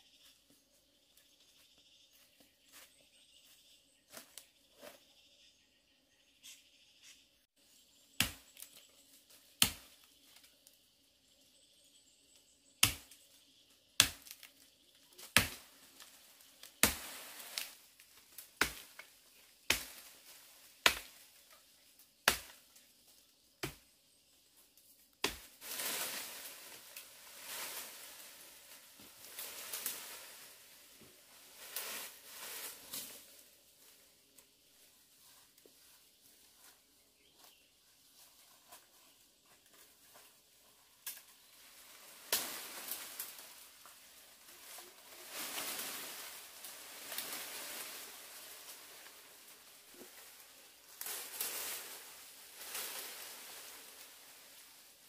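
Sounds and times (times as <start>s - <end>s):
rustling of leaves and branches: 0.0s - 5.2s, 7.6s - 55.0s
blade chopping into wood: 12.8s - 13.2s, 18.6s - 18.9s.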